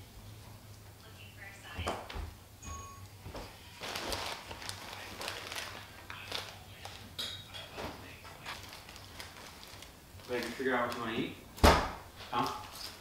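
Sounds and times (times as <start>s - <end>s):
plastic chip bag crinkling: 3.6s - 7.1s, 8.4s - 11.4s.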